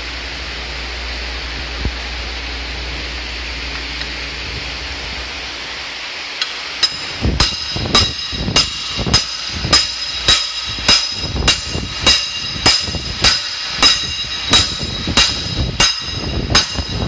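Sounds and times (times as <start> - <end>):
steady hiss: 0.0 - 17.0
hammer striking steel bar: 6.8 - 17.0.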